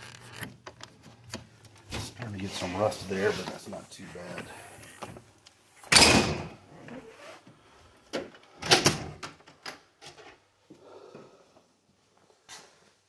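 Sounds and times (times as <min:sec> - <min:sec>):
door thudding shut: 0:05.9 - 0:06.6.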